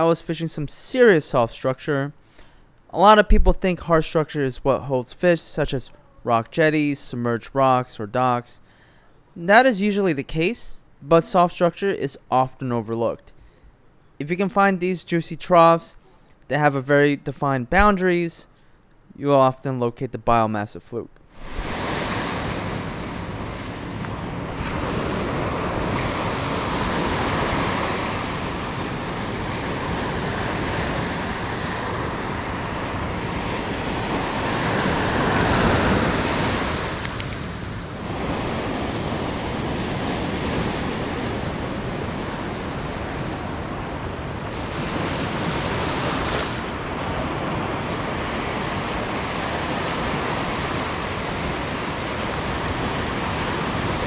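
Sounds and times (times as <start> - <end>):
ocean waves breaking on sand: 21.3 - 54.0.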